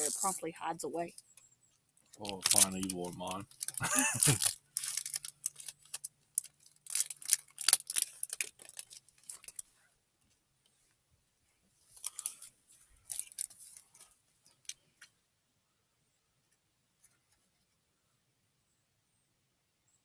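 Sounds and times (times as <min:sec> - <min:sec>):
foil wrapper crinkling and tearing: 0:02.2 - 0:09.7, 0:11.9 - 0:14.8.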